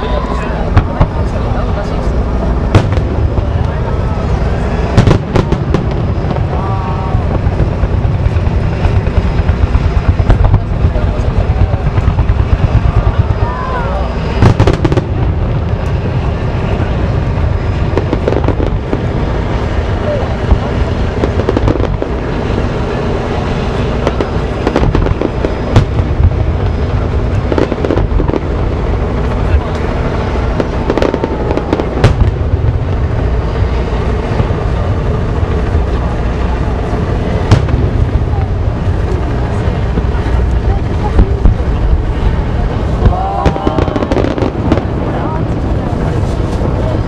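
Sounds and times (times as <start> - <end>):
fireworks rumble: 0.0 - 47.0
fireworks crackling pops: 2.7 - 3.9, 4.9 - 6.6, 7.2 - 13.6, 14.3 - 16.2, 17.6 - 19.2, 20.0 - 22.7, 23.6 - 34.8, 37.4 - 42.2, 43.0 - 46.8.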